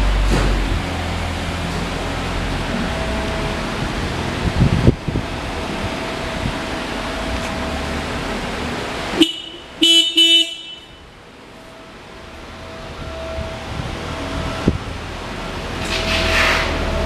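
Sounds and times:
motorcycle horn beeps: 0:09.2 - 0:11.0.

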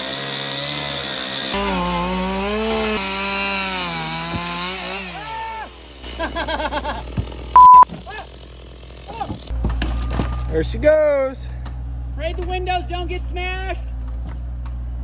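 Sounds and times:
chainsaw cutting roof: 0:00.0 - 0:10.0.

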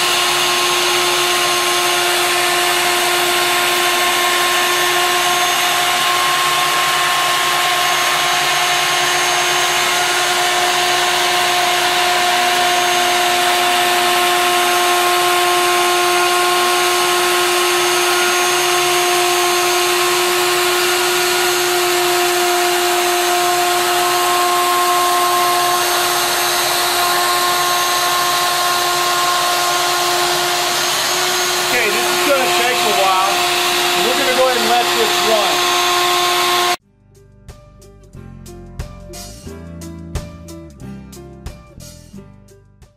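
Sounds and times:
router cutting hiss: 0:00.0 - 0:36.8
router whine: 0:00.0 - 0:36.8.

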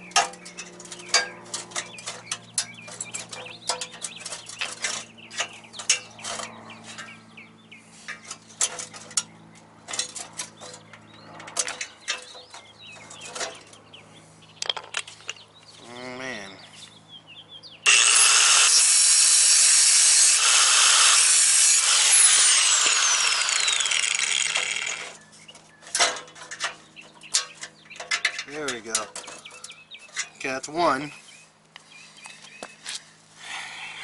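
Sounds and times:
angle grinder spinning up: 0:17.9 - 0:25.2.

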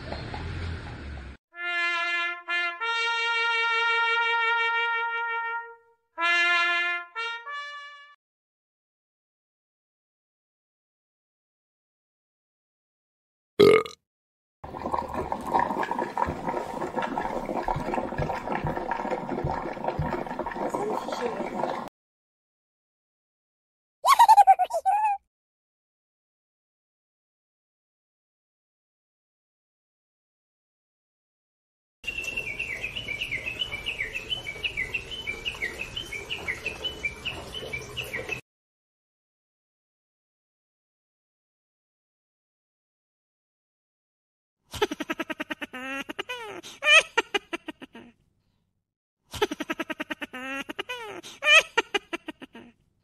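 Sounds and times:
liquid gurgling and splashing: 0:14.6 - 0:21.9.

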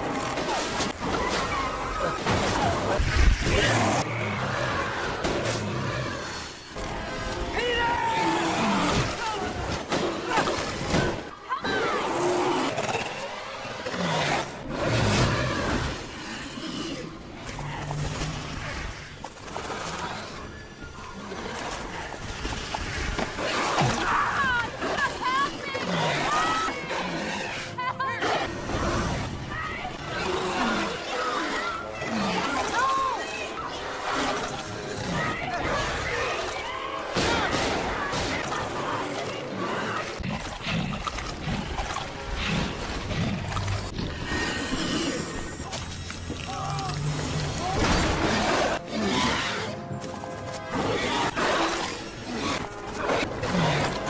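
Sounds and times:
action film music: 0:00.0 - 0:54.0
crashing and rumbling creature effects: 0:37.1 - 0:49.9.

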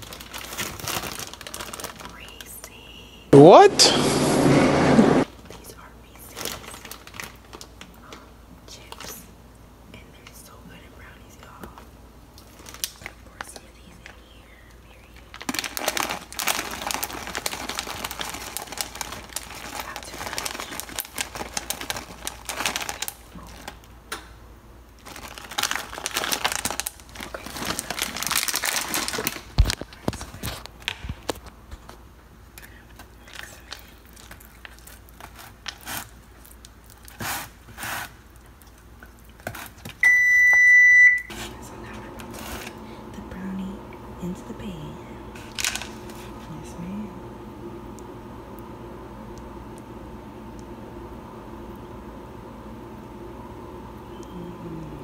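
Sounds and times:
plastic bag crinkling: 0:00.0 - 0:02.5, 0:06.3 - 0:08.2, 0:12.4 - 0:14.2, 0:15.0 - 0:23.9, 0:25.0 - 0:31.5, 0:32.8 - 0:40.0, 0:45.4 - 0:46.5.

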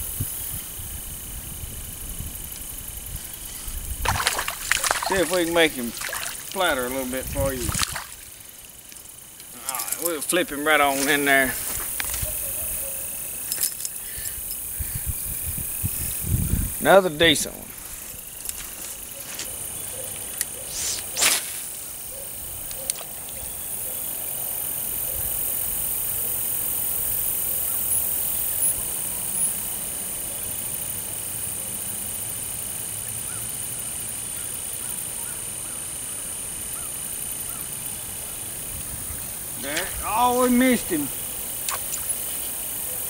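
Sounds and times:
fishing rod swish: 0:04.0 - 0:06.5, 0:20.7 - 0:21.7, 0:41.7 - 0:42.2.

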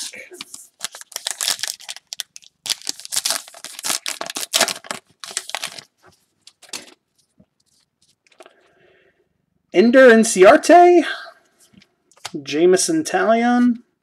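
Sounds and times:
wrapper tearing and crinkling: 0:00.4 - 0:05.9
cards rustling: 0:00.4 - 0:08.5.

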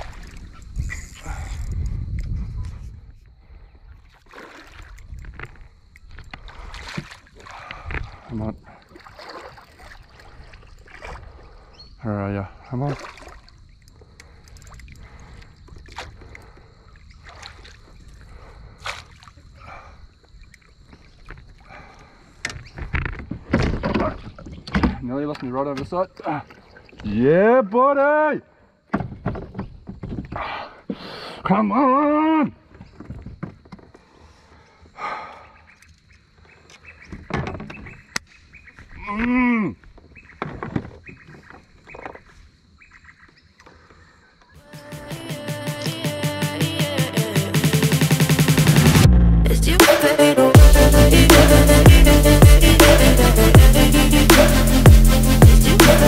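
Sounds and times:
steady low rumble: 0:48.6 - 0:49.8, 0:50.6 - 0:56.0.

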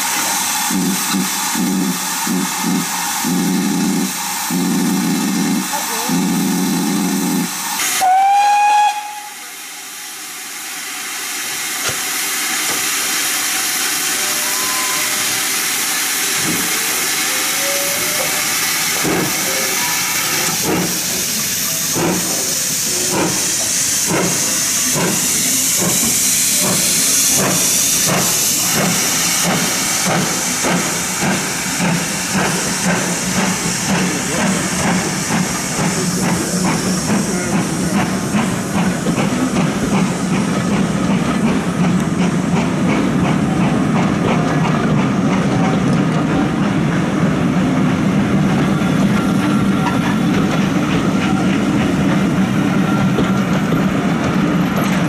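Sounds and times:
steam hissing: 0:00.0 - 0:55.0
steam locomotive exhaust beats: 0:00.0 - 0:55.0
steam whistle: 0:07.8 - 0:09.6, 0:14.0 - 0:15.6, 0:17.4 - 0:18.4.

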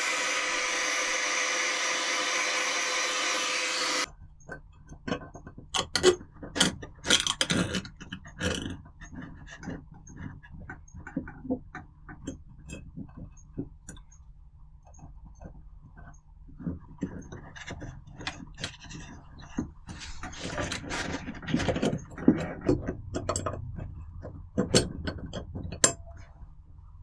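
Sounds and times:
loud steady hiss: 0:00.0 - 0:04.0.

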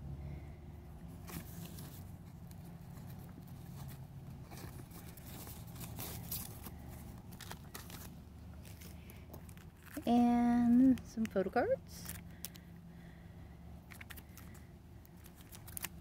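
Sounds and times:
low background hum: 0:00.0 - 0:16.0
plastic sleeve rustling: 0:01.1 - 0:11.1, 0:13.9 - 0:16.0.

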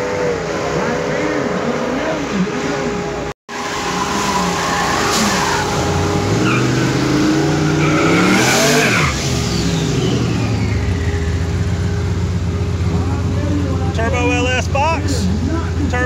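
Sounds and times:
car engines revving: 0:00.0 - 0:16.0
tire squeal: 0:03.5 - 0:12.7.

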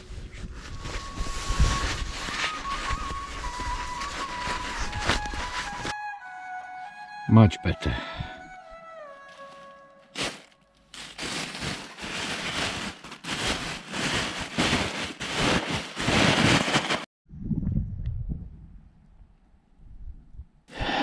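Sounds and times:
plastic bag rustling and crinkling: 0:00.0 - 0:06.0, 0:09.2 - 0:17.1
low rumble: 0:17.3 - 0:20.6.

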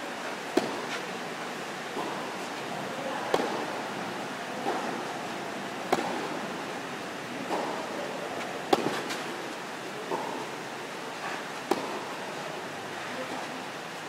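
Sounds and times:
tennis ball hit by racket: 0:00.5 - 0:01.0, 0:01.9 - 0:02.3, 0:03.2 - 0:03.8, 0:04.6 - 0:05.1, 0:05.8 - 0:06.4, 0:07.4 - 0:08.0, 0:08.7 - 0:09.4, 0:11.6 - 0:12.1.

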